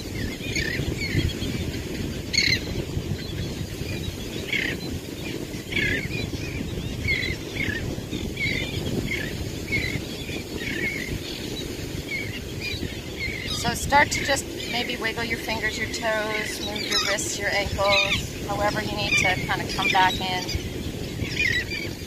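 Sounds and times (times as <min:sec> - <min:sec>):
birds chirping: 0:00.0 - 0:22.0
wind rumble on microphone: 0:00.0 - 0:22.0.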